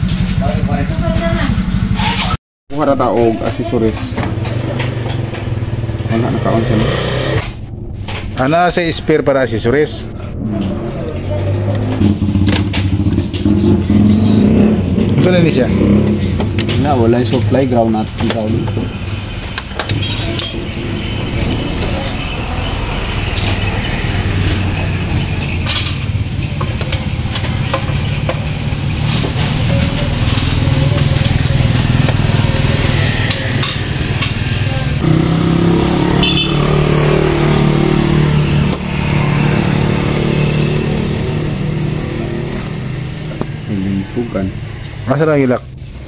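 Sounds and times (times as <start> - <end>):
motorcycle engine idling: 0.0 - 2.4, 3.4 - 8.0.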